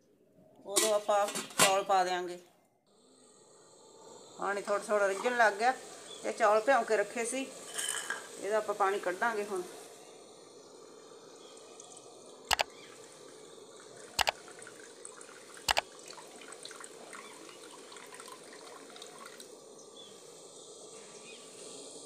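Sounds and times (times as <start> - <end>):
steel bowl clinking on rim: 7.7 - 8.3
water trickling and dripping: 10.7 - 19.8.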